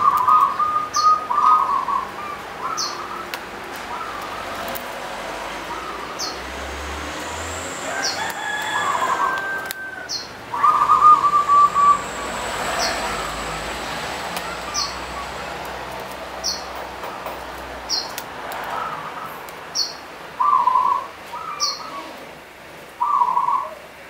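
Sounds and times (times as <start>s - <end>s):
small bird chirping: 0.0s - 4.8s, 14.4s - 17.2s, 18.8s - 22.1s
dove cooing: 0.0s - 6.4s, 7.9s - 13.6s.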